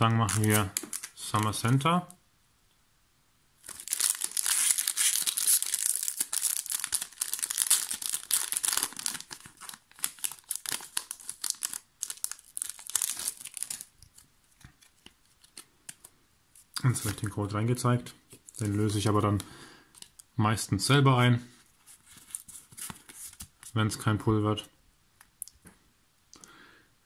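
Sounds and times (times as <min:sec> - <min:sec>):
foil wrapper tearing and crinkling: 0:00.2 - 0:01.2, 0:03.6 - 0:14.2.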